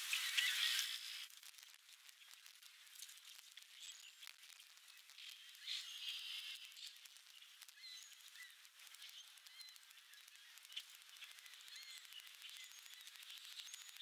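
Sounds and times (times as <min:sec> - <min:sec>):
tiny crackles: 0:00.0 - 0:14.0
faint bird chirps: 0:03.7 - 0:14.0.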